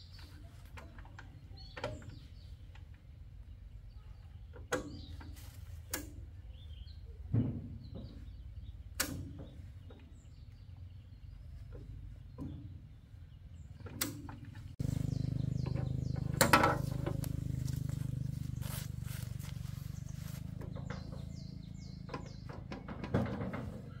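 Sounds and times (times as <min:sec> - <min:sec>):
bird chirping: 0:00.0 - 0:23.0
engine running: 0:09.6 - 0:24.0
metallic knocks: 0:15.4 - 0:17.6.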